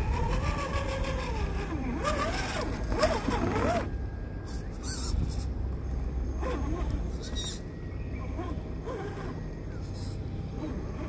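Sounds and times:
electric motor whining: 0.0 - 4.0, 6.2 - 7.3, 8.2 - 9.7, 10.3 - 11.0.

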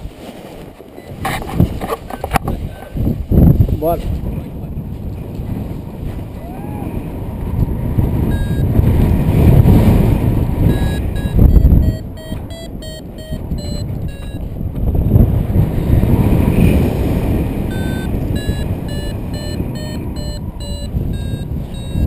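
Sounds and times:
wind rush on microphone: 0.0 - 22.0
variometer beeping in short pips: 8.3 - 8.8, 10.6 - 14.5, 17.7 - 22.0.

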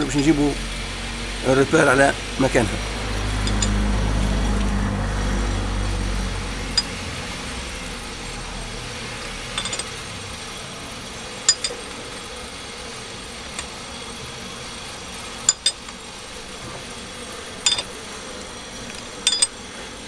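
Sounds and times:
vehicle engine droning: 0.0 - 19.6
metallic tool clinks: 3.4 - 3.8, 9.6 - 9.9, 11.5 - 11.8, 15.5 - 15.8, 17.6 - 17.9, 19.3 - 19.6.

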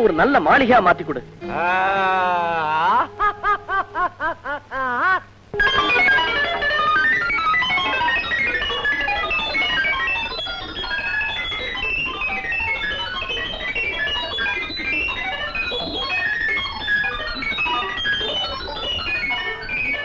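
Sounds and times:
rapid keyboard runs: 5.8 - 20.0.

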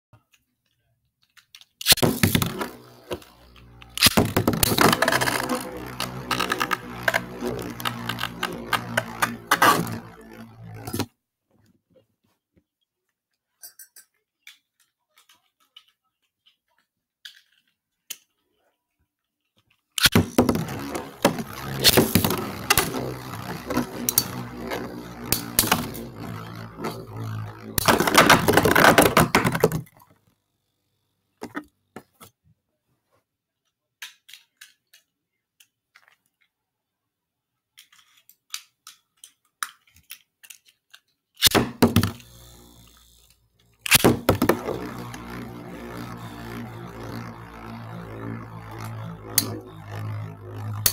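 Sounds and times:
spinning tops clashing: 20.0 - 29.8.

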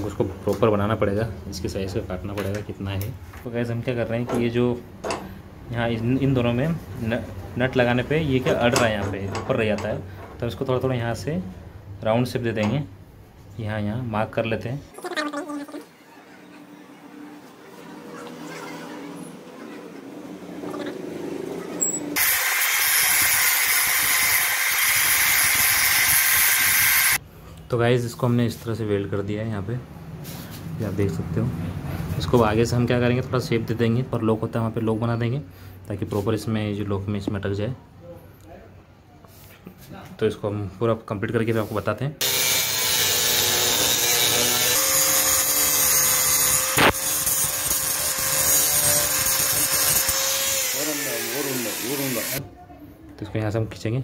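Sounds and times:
angle grinder grinding metal: 21.8 - 27.2, 42.2 - 52.4.

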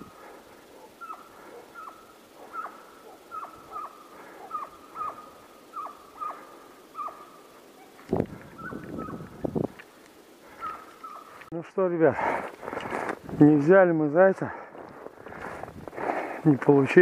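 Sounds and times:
hounds baying faintly: 0.0 - 9.3, 10.4 - 11.4.

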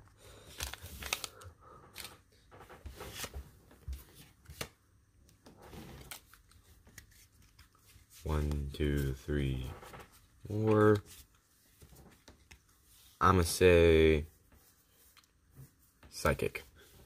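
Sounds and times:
trading cards sliding and flicking: 2.9 - 4.8, 6.0 - 9.1.

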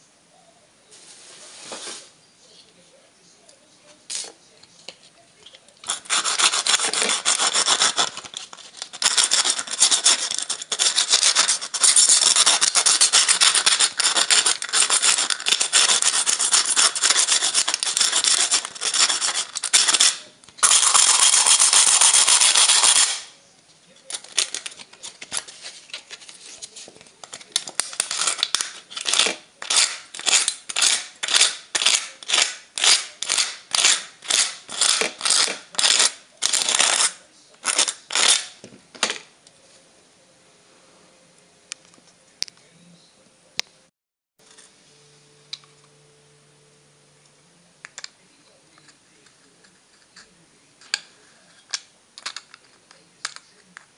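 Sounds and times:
metal pieces scraping: 5.8 - 23.3, 24.1 - 26.6, 27.2 - 39.3.

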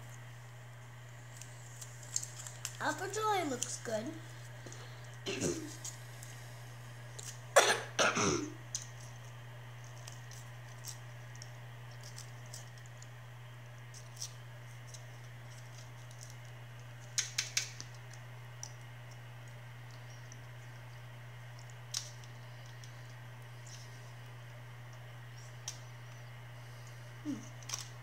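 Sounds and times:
steady low hum: 0.0 - 28.0
plastic pouch crinkling: 1.2 - 6.4
child coughing: 5.3 - 5.7, 7.6 - 8.6.

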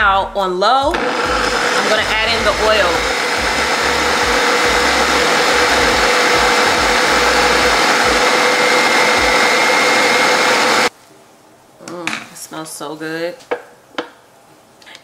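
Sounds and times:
food processor motor whine: 0.9 - 10.9.

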